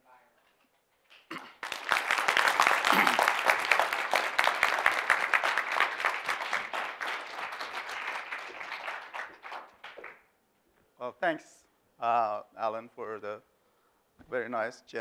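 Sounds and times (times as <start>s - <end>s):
audience applauding: 1.3s - 10.2s.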